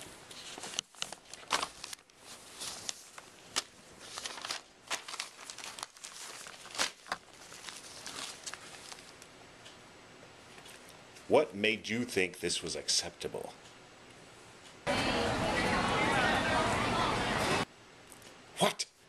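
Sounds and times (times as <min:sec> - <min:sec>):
paper rustling and crinkling: 0:00.0 - 0:09.3.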